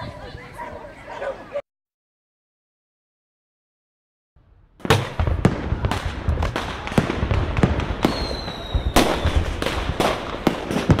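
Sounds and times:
fireworks bangs and crackles: 0:04.4 - 0:11.0
high thin firework whistle: 0:08.0 - 0:09.4.

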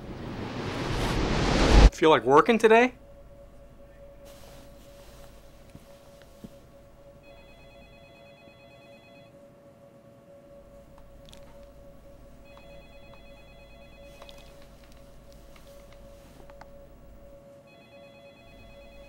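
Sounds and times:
electrical hum: 0:00.0 - 0:19.0
telephone warbling ring: 0:07.1 - 0:09.4, 0:10.6 - 0:15.5, 0:17.7 - 0:19.0.

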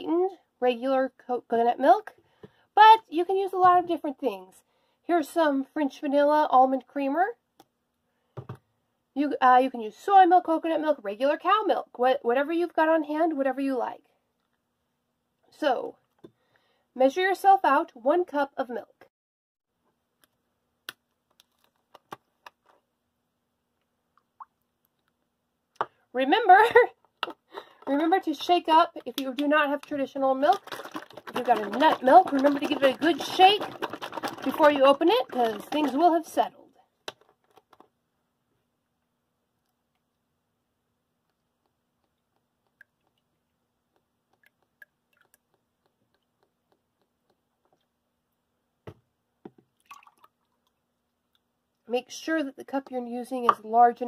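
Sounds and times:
liquid dripping into cup: 0:43.9 - 0:47.1, 0:49.8 - 0:50.8.

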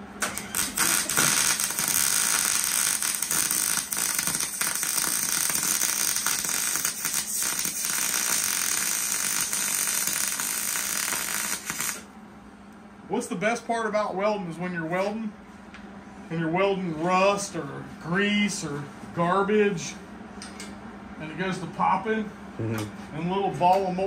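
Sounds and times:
welding arc crackling sizzle: 0:00.0 - 0:12.1.

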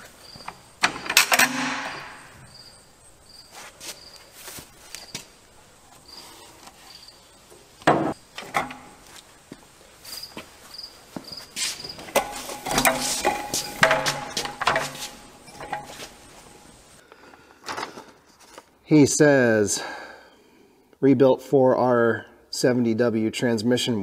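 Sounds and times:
crickets chirping: 0:00.0 - 0:17.1
clicks and metal rattles: 0:00.4 - 0:02.3, 0:07.8 - 0:09.0, 0:12.0 - 0:16.8
loud metal knock: 0:00.8 - 0:02.4, 0:12.2 - 0:15.9.

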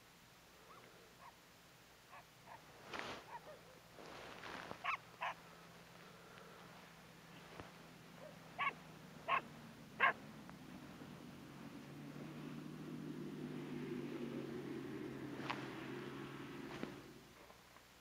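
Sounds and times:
low steady hum: 0:00.0 - 0:18.0
animal yelping: 0:04.8 - 0:05.4, 0:08.2 - 0:10.2.

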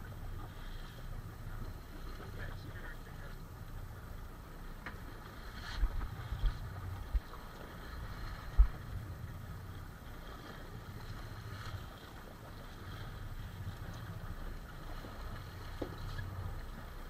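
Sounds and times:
water sloshing against hull: 0:00.0 - 0:17.0
wind buffeting microphone: 0:05.7 - 0:17.0.

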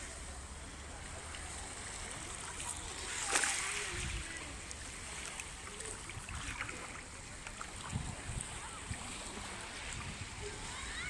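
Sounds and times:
people calling and shouting: 0:05.6 - 0:11.0
wind on microphone: 0:07.6 - 0:11.0.

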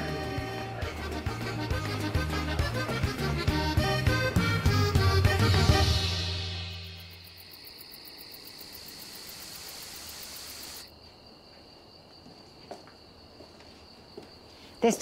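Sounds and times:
crickets chirping: 0:05.9 - 0:15.0.

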